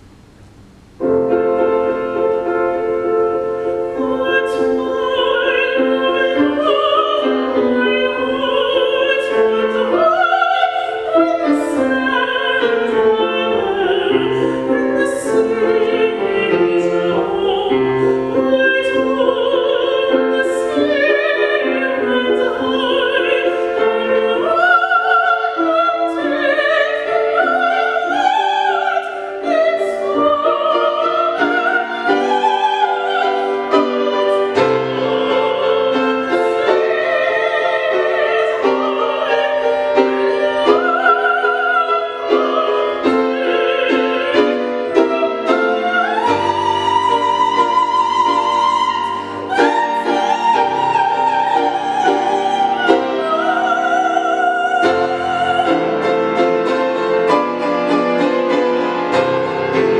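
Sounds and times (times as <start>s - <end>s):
piano accompaniment: 0.0s - 59.9s
countertenor singing: 3.4s - 59.9s.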